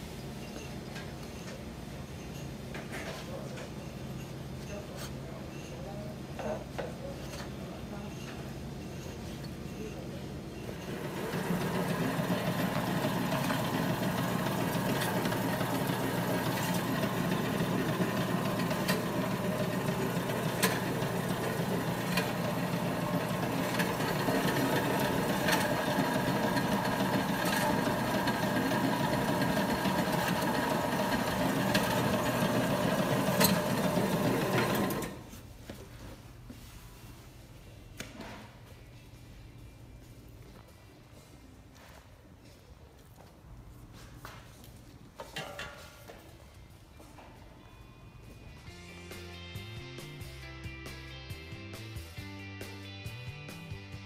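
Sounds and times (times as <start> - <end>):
electric meat slicer running: 10.8 - 35.2.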